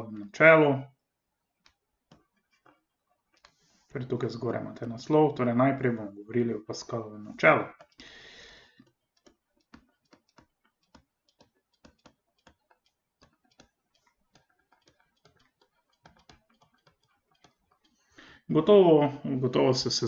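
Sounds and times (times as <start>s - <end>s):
faint light ticks of writing: 1.6s - 3.9s, 7.8s - 18.2s.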